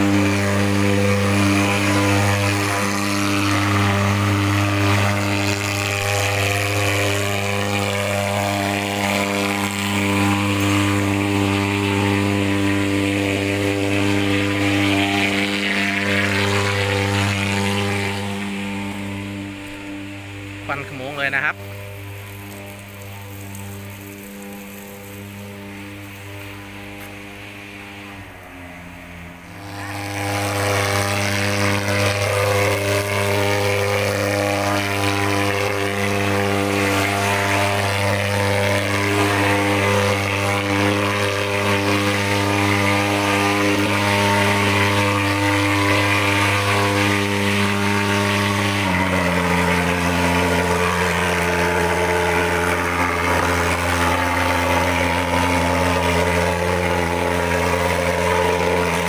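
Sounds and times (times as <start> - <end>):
fogging machine droning: 0.0 - 59.0.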